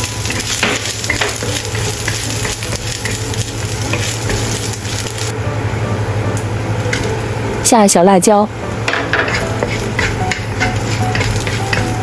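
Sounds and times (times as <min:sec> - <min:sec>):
ginger sizzling in hot oil: 0:00.0 - 0:05.4, 0:08.9 - 0:12.0
wooden spatula scraping a wok: 0:09.1 - 0:12.0.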